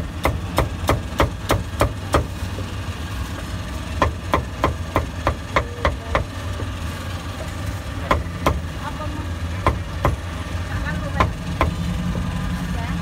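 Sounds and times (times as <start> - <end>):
low engine hum: 0.0 - 13.0
cleaver chopping on wooden block: 0.2 - 2.3.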